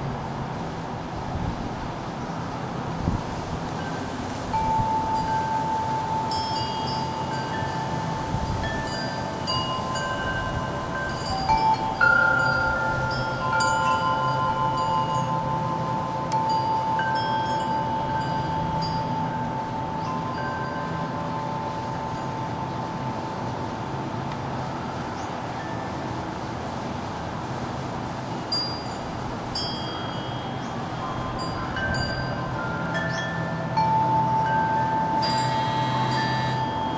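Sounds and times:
wind chimes ringing: 0:03.7 - 0:26.2, 0:28.2 - 0:36.9.

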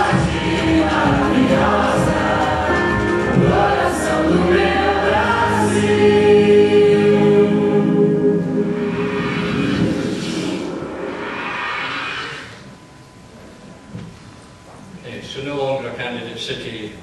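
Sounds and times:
choir singing over music: 0:00.0 - 0:12.5.

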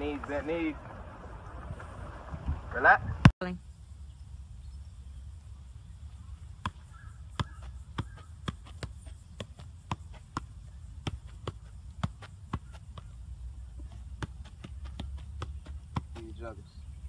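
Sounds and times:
wind rumble on microphone: 0:00.0 - 0:08.2
soccer ball being juggled: 0:06.6 - 0:16.5.

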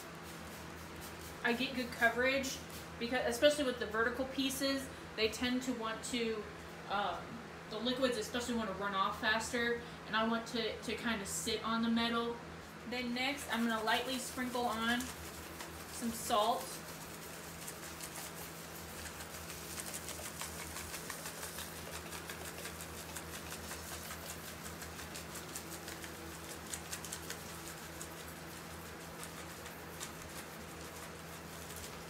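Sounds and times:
salt grains pattering on metal: 0:13.4 - 0:32.0.

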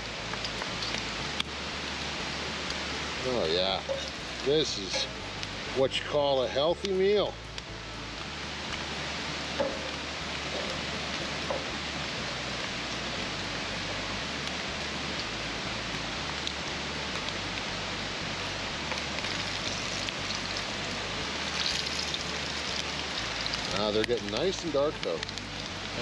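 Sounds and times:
sausages sizzling: 0:00.0 - 0:26.0.

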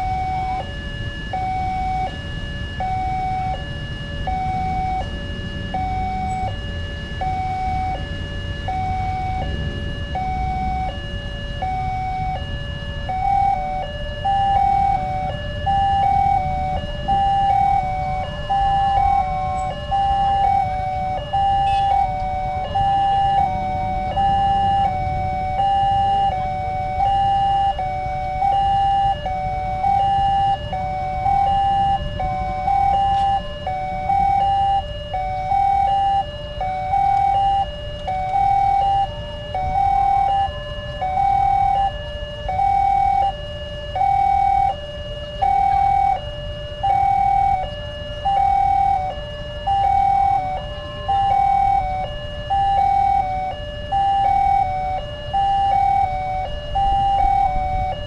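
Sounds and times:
two-tone crossing alarm: 0:00.0 - 0:58.0
low rumble: 0:04.3 - 0:12.4.

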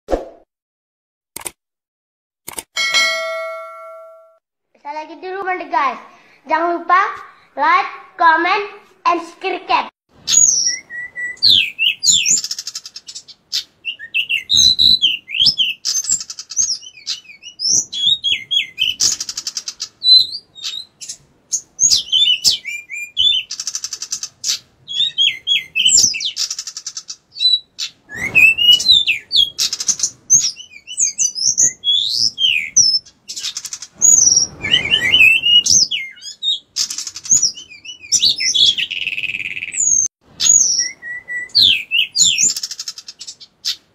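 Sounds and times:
bird singing whistled chirps: 0:10.3 - 0:19.1, 0:21.8 - 0:23.5, 0:24.9 - 0:26.4, 0:27.4 - 0:36.6, 0:37.4 - 0:43.4.

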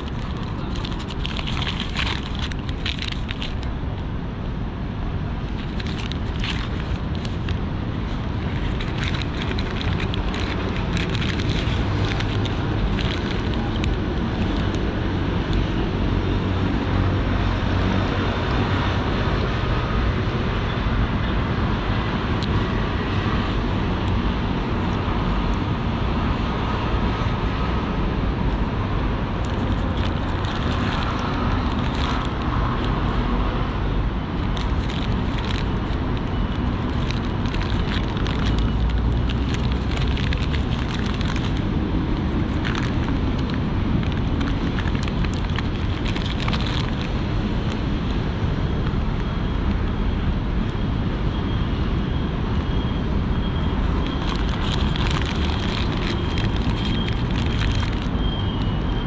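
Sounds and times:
paper wrappers crinkling: 0:00.0 - 0:03.7, 0:05.4 - 0:14.8, 0:29.4 - 0:33.0, 0:34.4 - 0:47.8, 0:53.8 - 0:58.2
low city rumble: 0:00.0 - 0:59.0.

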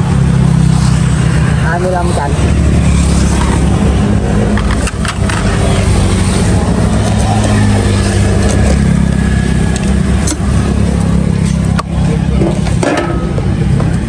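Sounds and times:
motorbike and traffic engines: 0:00.0 - 0:14.0.

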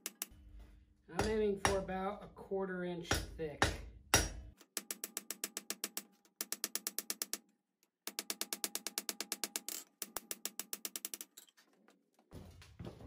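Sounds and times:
hammer striking hot steel on anvil: 0:01.2 - 0:02.0, 0:03.1 - 0:04.5.

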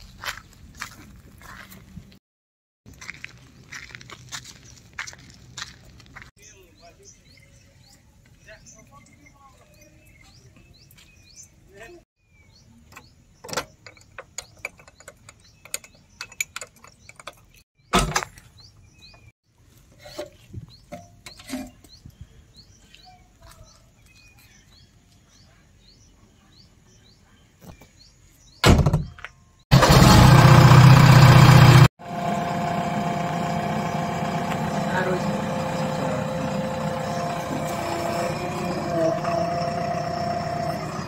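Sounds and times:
birds chirping: 0:03.3 - 0:19.3, 0:19.9 - 0:29.6, 0:31.5 - 0:41.0
loud thump: 0:28.6 - 0:29.2
diesel engine running: 0:29.7 - 0:41.0.

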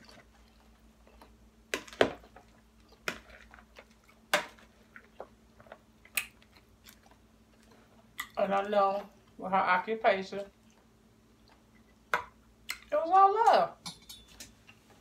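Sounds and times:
close-up chewing: 0:00.0 - 0:01.5, 0:02.3 - 0:08.4, 0:10.5 - 0:12.9.

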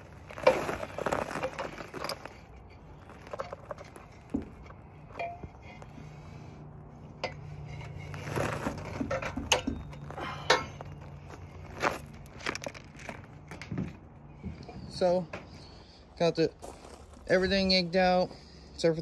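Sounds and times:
metal clinks and rattles: 0:00.0 - 0:06.4, 0:07.0 - 0:13.8.

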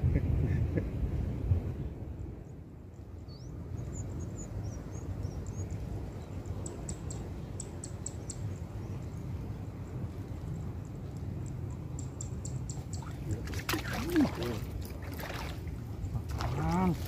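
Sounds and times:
low rumble of wind: 0:00.0 - 0:17.0
small birds chirping: 0:03.2 - 0:13.6
sharp ticks: 0:10.8 - 0:13.1.

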